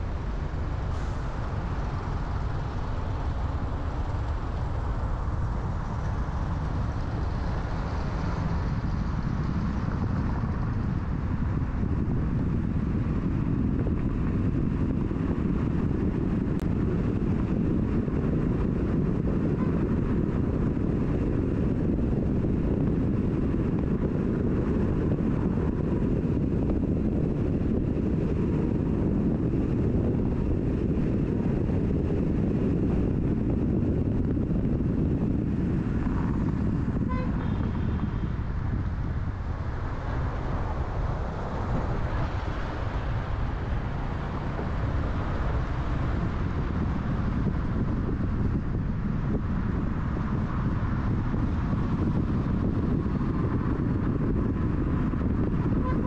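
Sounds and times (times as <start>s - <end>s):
wind and road noise from car: 0.0s - 56.0s
car horn toot: 37.1s - 38.2s, 55.8s - 56.0s.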